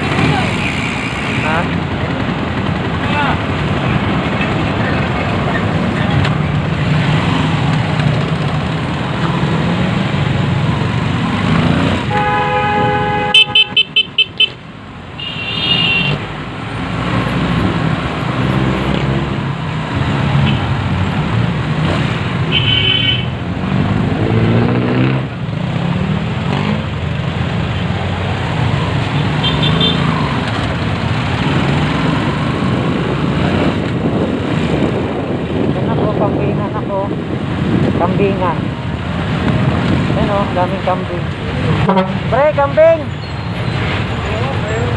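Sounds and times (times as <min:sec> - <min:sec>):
motorcycle engine: 0:00.0 - 0:44.9
vehicle horns honking: 0:11.8 - 0:16.2, 0:20.4 - 0:20.7, 0:22.5 - 0:23.4, 0:29.2 - 0:30.2, 0:41.7 - 0:42.5.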